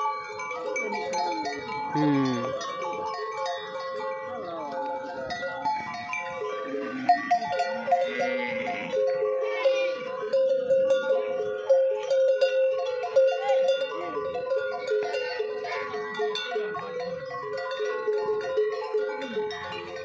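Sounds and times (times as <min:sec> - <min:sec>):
cattle bells clanking: 0:00.0 - 0:20.0.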